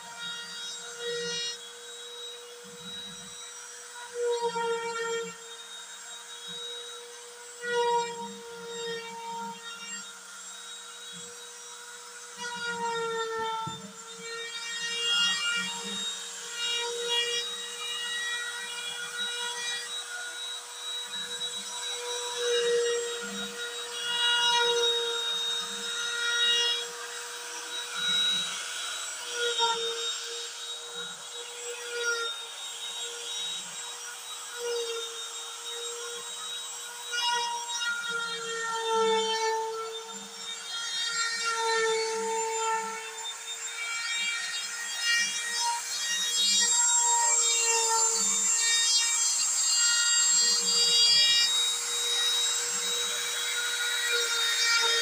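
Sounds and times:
router spindle whining: 0:00.0 - 0:55.0.

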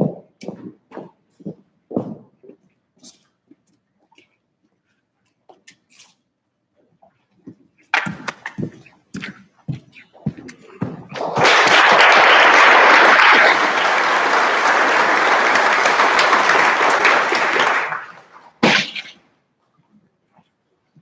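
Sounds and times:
audience clapping: 0:08.0 - 0:08.6, 0:11.1 - 0:18.7
sharp knock: 0:18.6 - 0:19.1.

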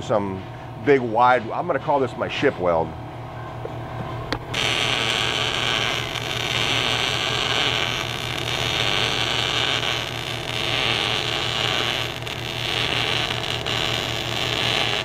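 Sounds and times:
welding arc crackling: 0:04.4 - 0:15.0.

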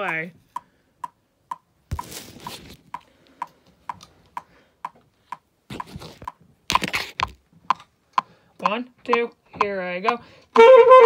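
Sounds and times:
rustling and bumps: 0:01.9 - 0:02.9.

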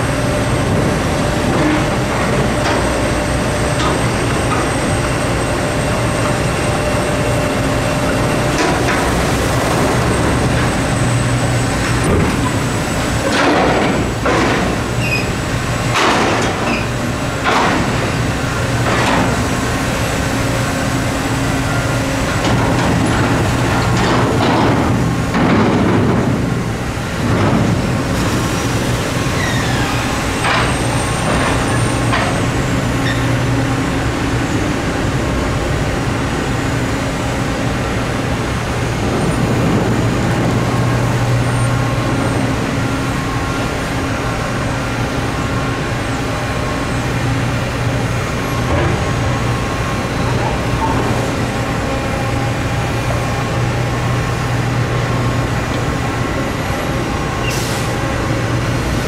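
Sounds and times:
heavy engine idling: 0:00.0 - 0:59.0
high squeal: 0:29.3 - 0:31.2.

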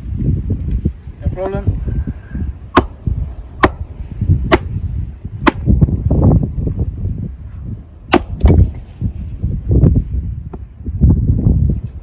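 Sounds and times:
axe chopping wood: 0:02.7 - 0:04.8, 0:05.4 - 0:05.8, 0:08.1 - 0:08.8.

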